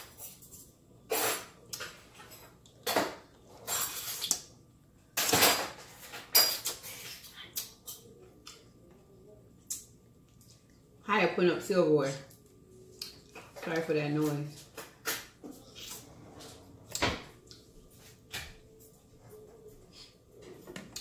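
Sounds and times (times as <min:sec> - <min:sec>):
silverware and dishes clattering: 0:00.0 - 0:04.4, 0:05.2 - 0:08.1.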